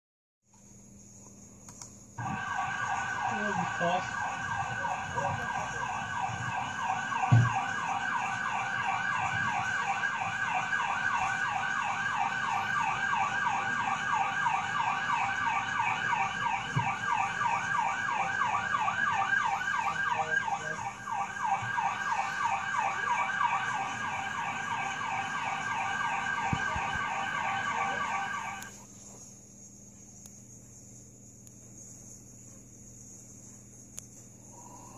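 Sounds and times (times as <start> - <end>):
siren yelping: 2.2 - 28.7.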